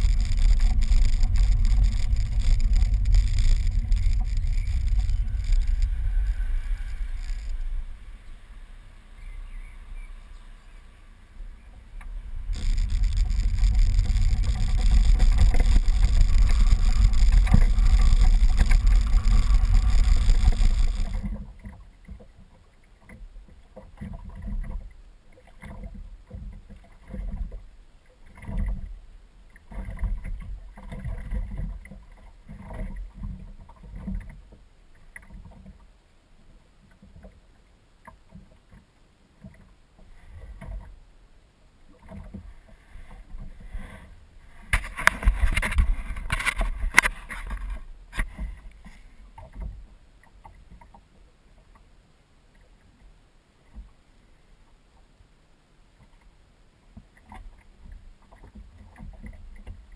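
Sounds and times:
wind and road noise: 0.0 - 21.8, 43.0 - 49.7
light wind and water: 0.0 - 59.9.

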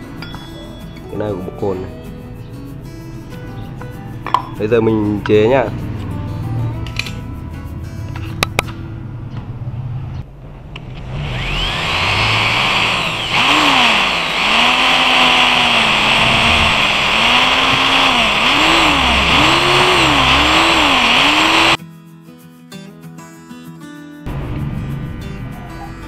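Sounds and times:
background music: 0.0 - 9.2
die grinder whining on metal: 11.0 - 21.8.

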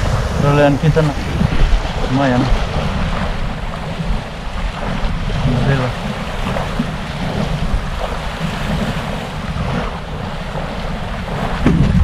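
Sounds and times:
waves washing in shallow water: 0.0 - 12.0
wind noise on microphone: 0.0 - 12.0.

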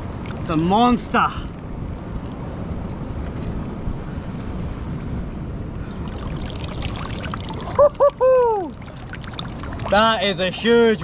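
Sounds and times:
water washing around rocks: 5.9 - 8.0, 8.6 - 11.0
light splashing: 5.9 - 11.0.

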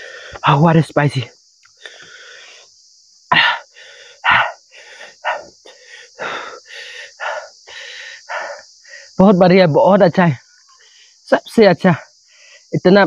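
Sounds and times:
person breathing hard through mouth: 0.0 - 0.4, 1.8 - 2.7, 3.3 - 9.2
high insect trill: 0.0 - 13.0.

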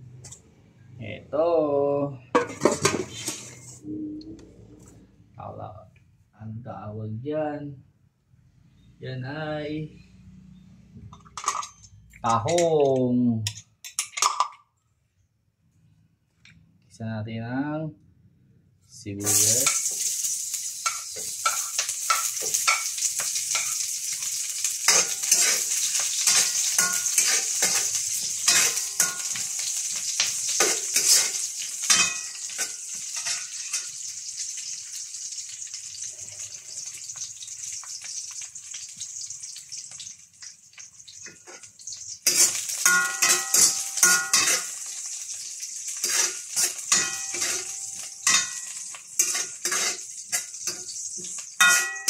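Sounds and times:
spatula scraping a pan: 2.4 - 3.8, 20.8 - 34.2, 41.2 - 52.0
onions sizzling in a wok: 19.2 - 52.0.

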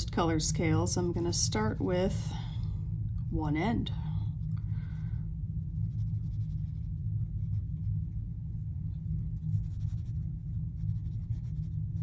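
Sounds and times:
steady low hum: 0.0 - 12.0
brush bristles dabbing paper: 8.9 - 12.0.

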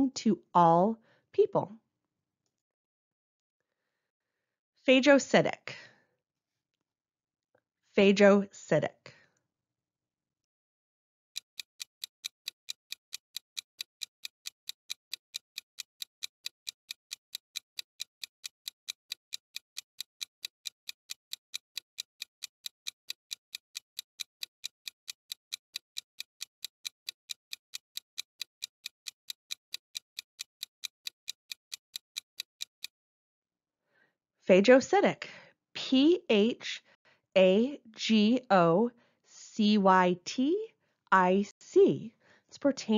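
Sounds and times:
clock ticking: 11.4 - 33.0.

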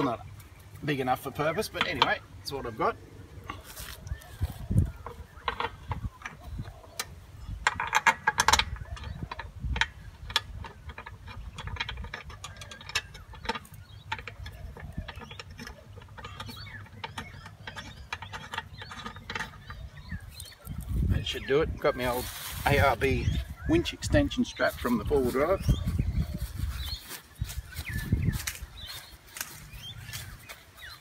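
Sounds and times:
metal shackle clinking: 0.7 - 31.0.

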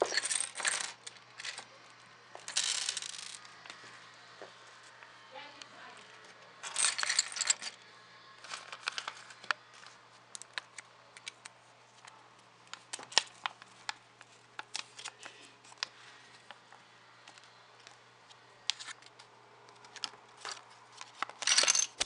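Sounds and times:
plastic pieces rattling: 0.0 - 1.7, 6.6 - 7.8, 8.4 - 11.3, 19.9 - 22.0.

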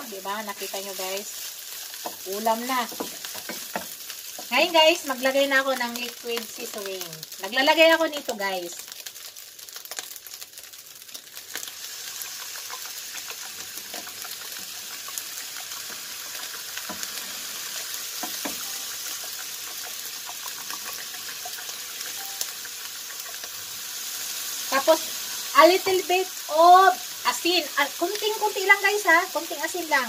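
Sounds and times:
fried rice sizzling in pan: 0.0 - 30.0
spatula clicking and scraping: 1.8 - 4.6, 12.2 - 15.2, 18.2 - 21.8, 22.6 - 23.6.

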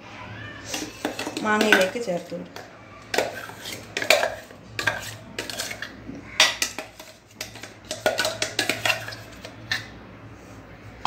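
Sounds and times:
metal spoon scraping steel jar: 3.1 - 5.9, 6.5 - 9.8.

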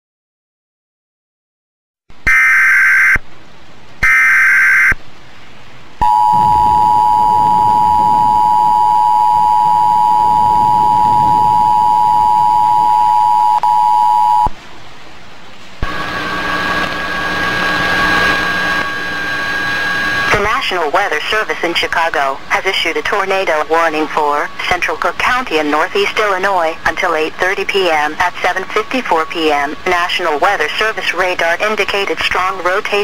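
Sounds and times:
two-tone attention signal: 6.0 - 14.5
radio hiss: 15.8 - 33.0.

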